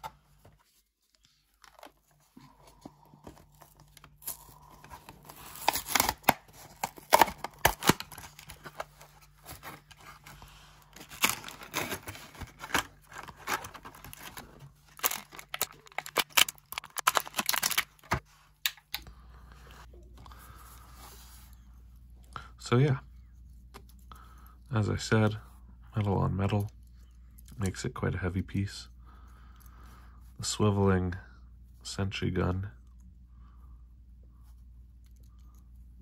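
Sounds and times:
plastic crackling and crinkling: 1.1s - 18.8s
card tearing: 4.1s - 18.2s.

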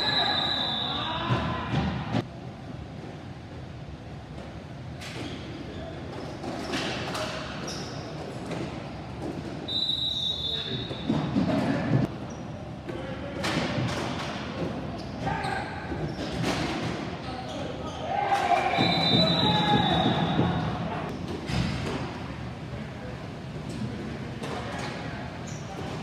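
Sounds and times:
referee's whistle: 0.0s - 1.2s, 9.7s - 11.1s, 18.7s - 20.6s
hockey sticks and ball clacking: 6.1s - 9.7s.

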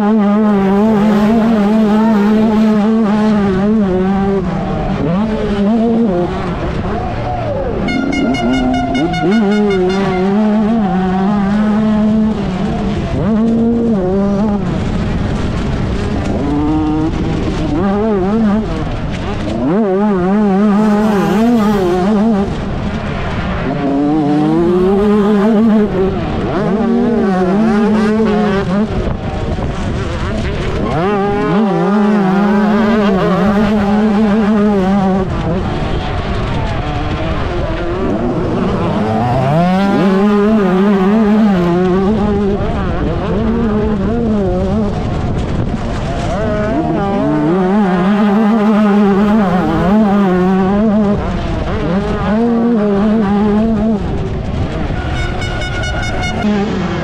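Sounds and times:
motocross bike engine revving: 0.0s - 57.0s.

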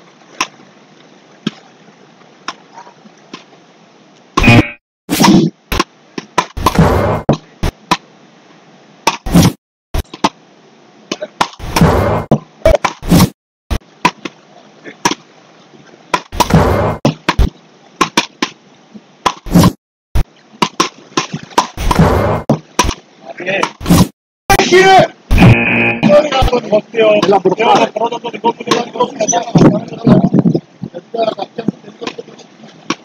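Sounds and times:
paddle whacking rubber ball: 4.4s - 8.1s, 11.1s - 13.3s, 16.2s - 18.6s, 19.2s - 23.0s.

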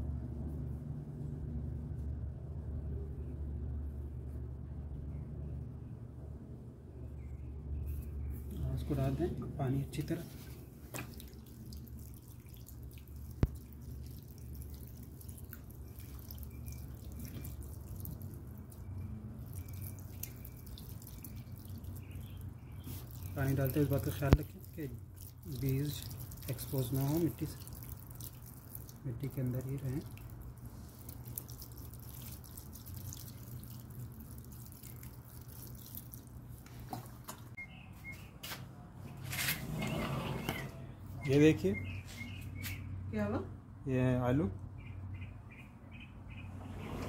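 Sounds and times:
low steady hum: 0.0s - 42.0s
small drips and splashes: 7.9s - 37.6s
water pouring onto soil: 8.4s - 37.5s.

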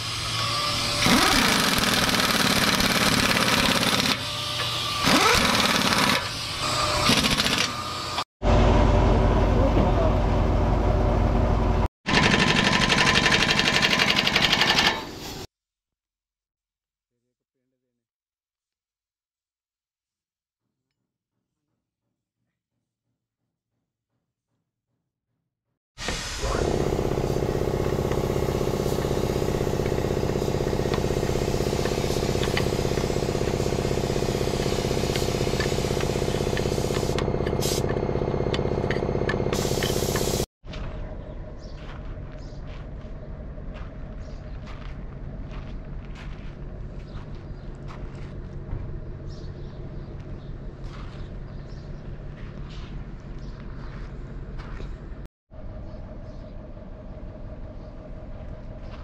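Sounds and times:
air impact wrench hammering: 0.0s - 8.2s, 12.1s - 15.5s, 26.1s - 40.5s
engine running steadily: 8.4s - 11.9s, 26.4s - 40.5s, 42.8s - 59.0s.

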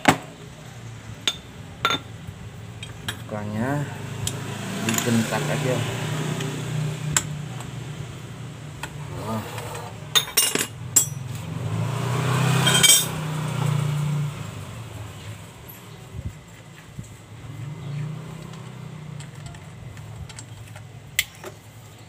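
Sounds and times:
metal tools clinking: 9.5s - 11.4s, 12.6s - 13.2s, 18.4s - 21.6s.

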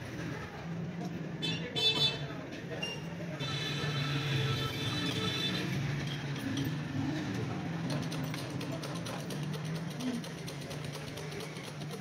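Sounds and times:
low hum of shop and street: 0.0s - 12.0s
spoke wheel ticking: 7.9s - 12.0s.

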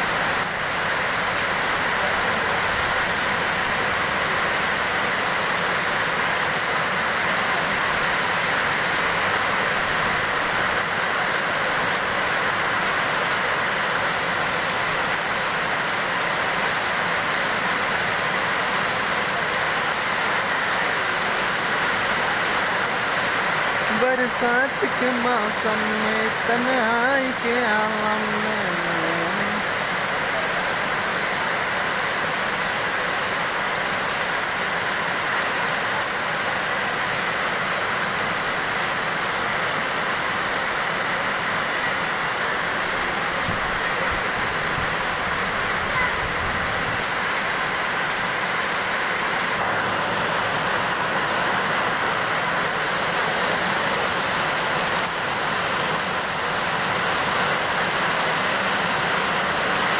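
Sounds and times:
heavy rain pouring: 0.0s - 59.9s.

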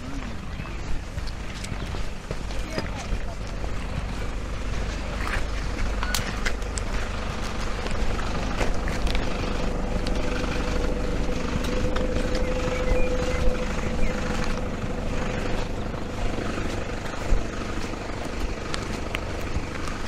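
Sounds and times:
distant engine drone: 0.0s - 20.0s
low rumble: 0.0s - 20.0s
light ticks: 17.8s - 20.0s.

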